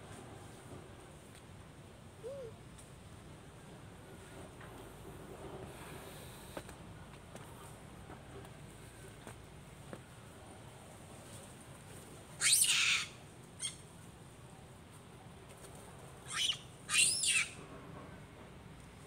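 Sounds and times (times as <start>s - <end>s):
monkey screams: 12.4s - 13.8s, 16.3s - 17.6s
monkey squeak: 12.4s - 13.8s, 16.3s - 17.6s.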